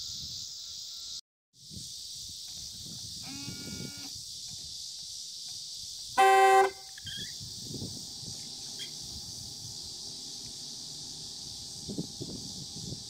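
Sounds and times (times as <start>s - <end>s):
car horn honk: 6.2s - 7.0s.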